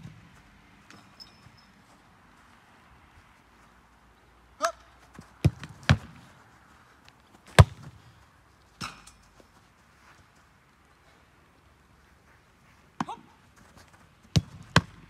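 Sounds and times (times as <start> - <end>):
football kicks and catches thudding: 5.4 - 6.2, 7.5 - 8.0, 14.3 - 15.0.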